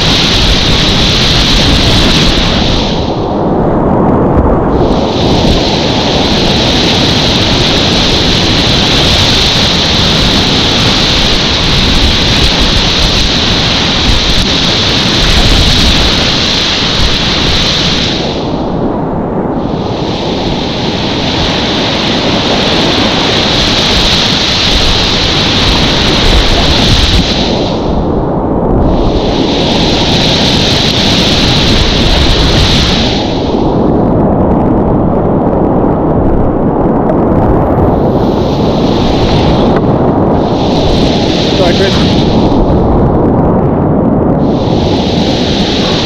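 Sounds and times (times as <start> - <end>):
whitewater rapids rushing: 20.1 - 27.8.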